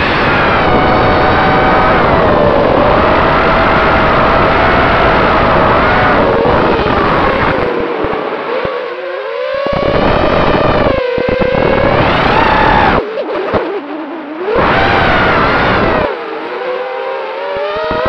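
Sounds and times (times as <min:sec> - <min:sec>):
drone motors whining: 0:00.0 - 0:18.0.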